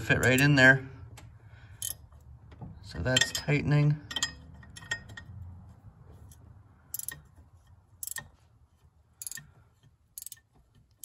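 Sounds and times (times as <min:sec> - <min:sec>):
ratcheting wrench clicking: 0:01.8 - 0:02.0, 0:06.9 - 0:07.3, 0:08.0 - 0:08.3, 0:09.2 - 0:11.0.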